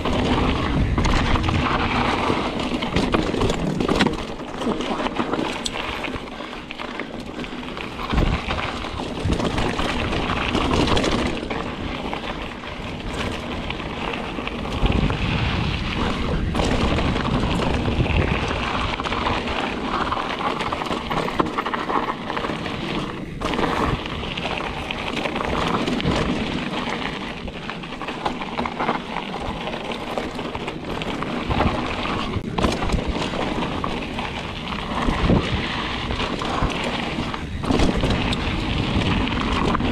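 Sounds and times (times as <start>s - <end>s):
wind buffeting microphone: 0.0s - 4.2s, 7.7s - 28.0s, 30.5s - 39.9s
bike rattling over bumps: 0.0s - 39.9s
bike tyres on dirt and stones: 0.0s - 39.9s.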